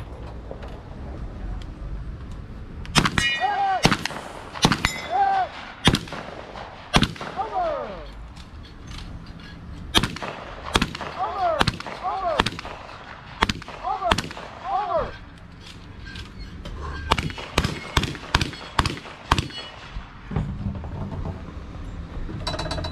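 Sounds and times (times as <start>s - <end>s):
gunshots: 2.9s - 8.0s, 9.9s - 15.0s, 17.1s - 20.3s.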